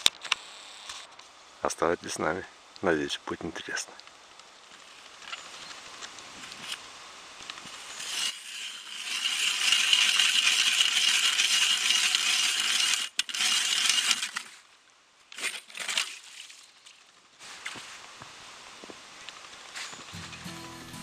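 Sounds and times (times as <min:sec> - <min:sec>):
ice auger grinding into ice: 0:07.8 - 0:14.6, 0:15.4 - 0:16.5.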